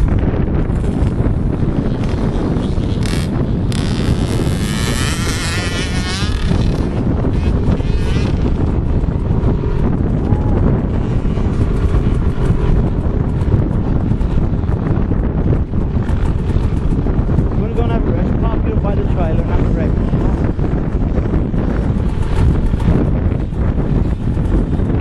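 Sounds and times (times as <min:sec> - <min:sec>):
wind buffeting microphone: 0:00.0 - 0:25.0
dirt bike engine revving: 0:00.7 - 0:18.5.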